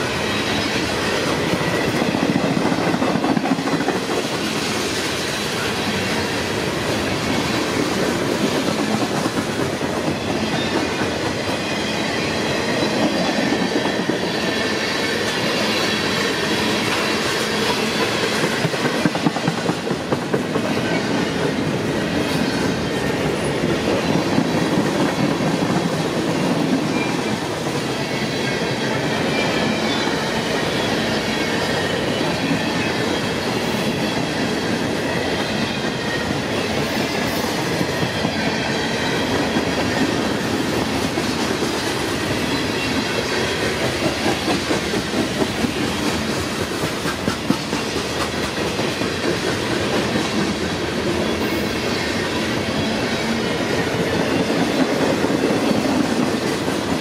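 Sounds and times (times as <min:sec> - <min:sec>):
freight train wheels rumbling on rails: 0:00.0 - 0:57.0.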